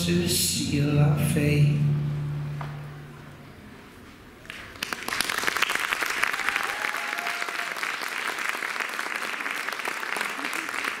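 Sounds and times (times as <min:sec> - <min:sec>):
audience applause: 0:04.4 - 0:11.0.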